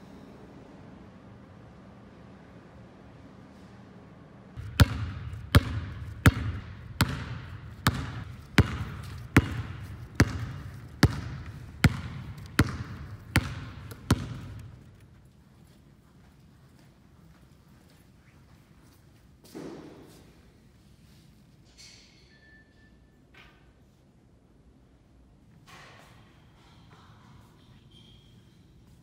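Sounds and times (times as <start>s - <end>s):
basketball bouncing on wooden floor: 4.6s - 15.0s.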